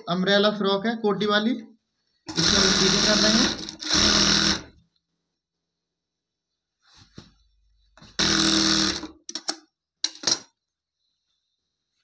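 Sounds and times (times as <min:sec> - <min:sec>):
sewing machine stitching: 0:02.3 - 0:04.8, 0:08.2 - 0:09.2
fabric handling: 0:06.6 - 0:08.1.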